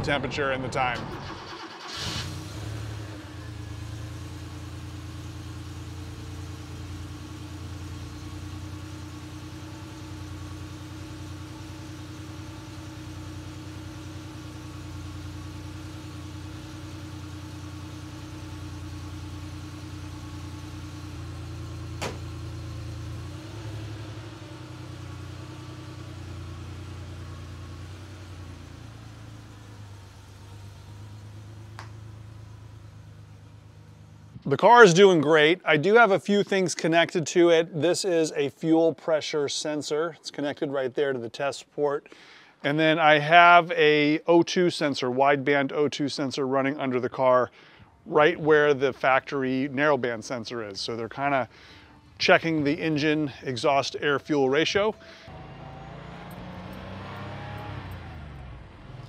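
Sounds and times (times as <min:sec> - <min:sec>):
car engine idling: 0:00.0 - 0:34.4, 0:47.6 - 0:59.0.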